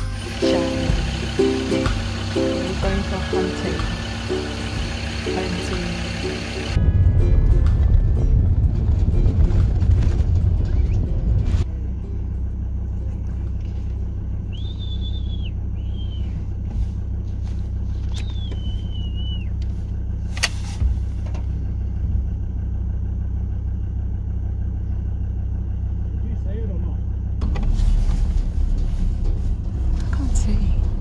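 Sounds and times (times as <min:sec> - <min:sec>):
vehicle engine rumble: 0:00.0 - 0:31.0
high squealing whistle calls: 0:14.5 - 0:16.4, 0:18.0 - 0:19.6.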